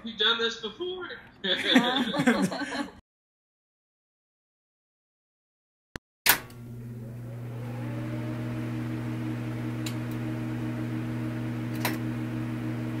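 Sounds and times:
film projector hum: 6.3s - 13.0s.

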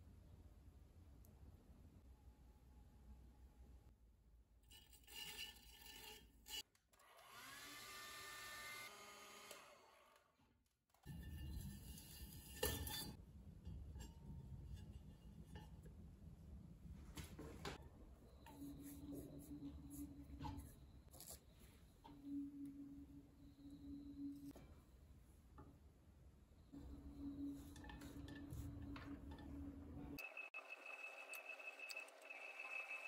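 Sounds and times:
potter's wheel motor hum: 26.8s - 33.0s.

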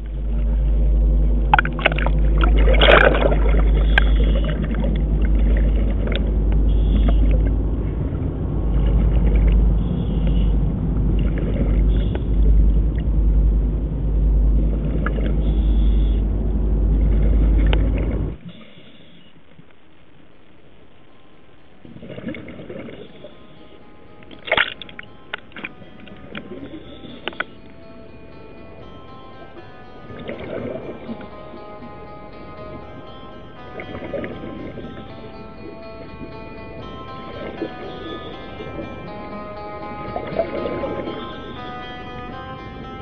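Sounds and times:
loud low rumble: 0.0s - 18.4s
droning hum: 0.0s - 43.0s.

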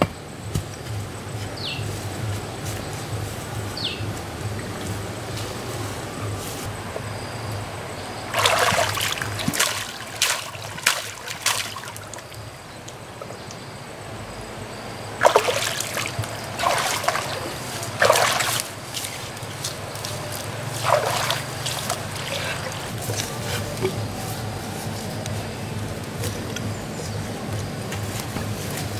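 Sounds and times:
low hum: 0.2s - 28.9s
splashing in muddy water: 8.1s - 12.6s, 15.2s - 24.8s.

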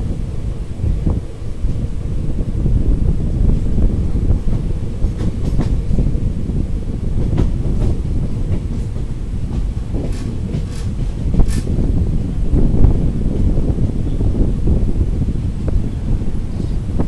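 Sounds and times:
train wheels rumbling on track: 0.0s - 17.0s
wheels clicking over rail joints: 3.4s - 12.1s.

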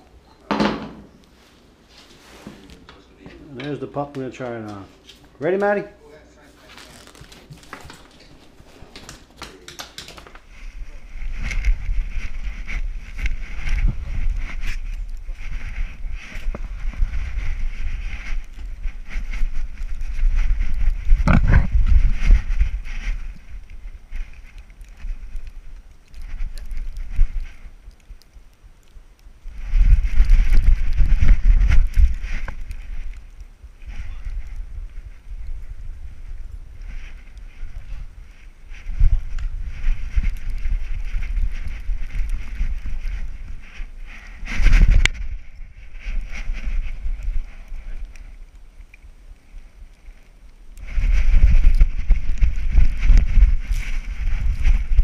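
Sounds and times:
camera thumping and rustling: 6.7s - 25.4s
wind buffeting microphone: 10.4s - 28.0s, 29.4s - 49.2s, 50.8s - 55.0s.

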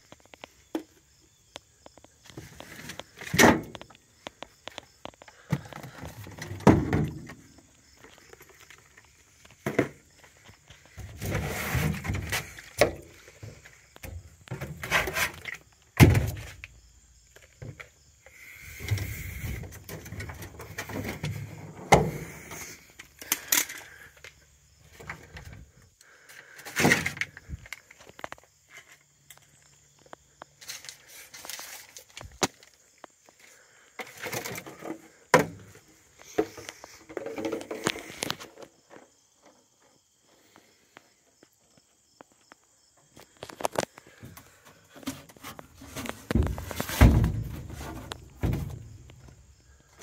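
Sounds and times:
items clunking and knocking: 1.9s - 16.7s, 18.6s - 29.4s, 34.0s - 39.6s, 43.4s - 50.0s
rustling and scraping: 1.9s - 16.7s, 17.3s - 25.8s, 26.4s - 40.7s, 43.1s - 50.0s.

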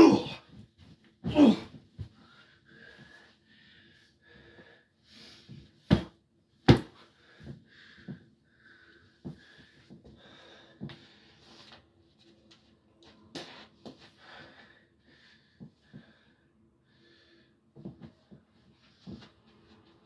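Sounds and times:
person breathing hard and wheezy: 1.3s - 5.8s, 7.0s - 11.8s, 14.0s - 18.1s
sharp thumps on mattress: 5.9s - 7.0s.

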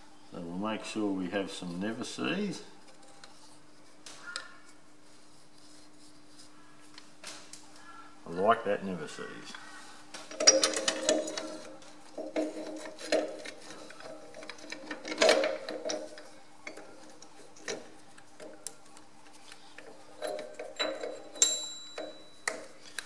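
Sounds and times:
faint steady hum: 0.0s - 23.0s
metal and rubber clicks and knocks: 10.3s - 18.7s
metallic ring: 20.2s - 22.5s.

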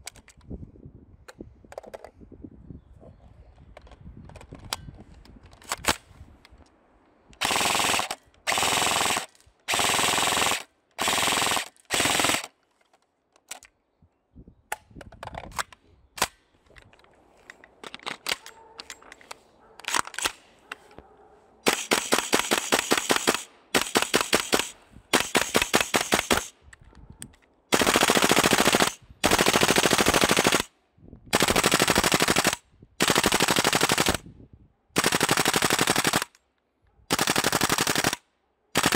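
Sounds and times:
airsoft guns firing bursts: 7.4s - 12.5s, 21.6s - 26.5s, 27.7s - 30.7s, 31.3s - 34.2s, 35.0s - 36.3s, 37.1s - 38.2s.

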